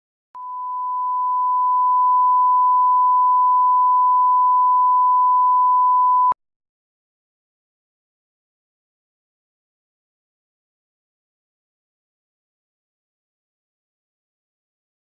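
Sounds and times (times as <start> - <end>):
steady test tone beep: 0.4 - 6.4.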